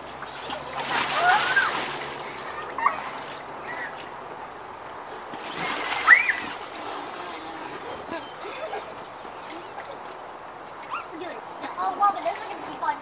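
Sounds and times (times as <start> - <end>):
water sloshing and splashing: 0.0 - 13.0
child squealing: 1.1 - 1.8, 6.0 - 6.6.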